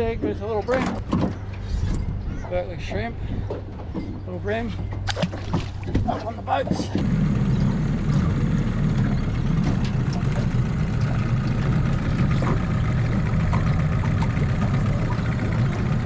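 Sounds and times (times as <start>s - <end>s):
outboard motor idling: 3.2s - 16.0s.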